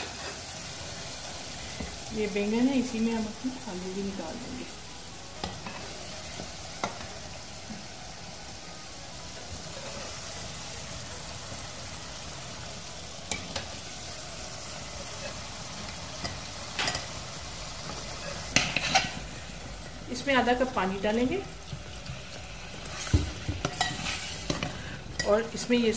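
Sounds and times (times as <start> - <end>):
potatoes sizzling in hot oil: 0.0 - 25.9
metal spoon clinking against pan: 16.2 - 17.1.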